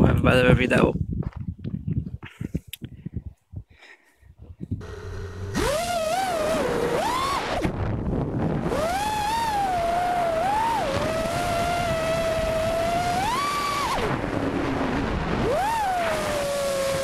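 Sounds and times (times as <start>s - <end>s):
quadcopter motors whining: 4.8s - 7.8s, 8.4s - 17.0s.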